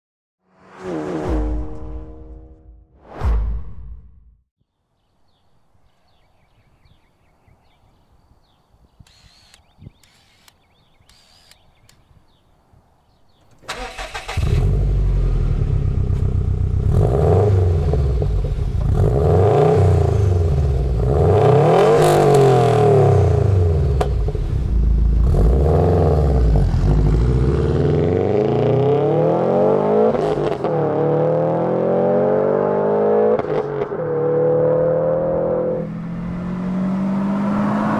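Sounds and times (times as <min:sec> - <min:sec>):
car accelerating away: 0:13.7 - 0:37.9
car engine revving: 0:13.7 - 0:37.9.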